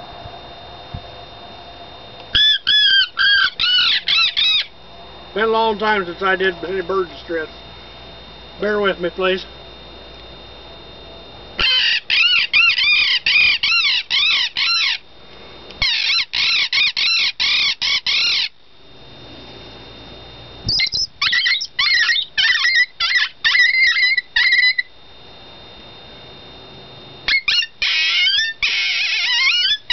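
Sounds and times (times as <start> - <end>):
reed call imitating bird distress: 2.4 - 4.7, 11.6 - 15.0, 15.8 - 18.5, 20.7 - 24.9, 27.3 - 29.9.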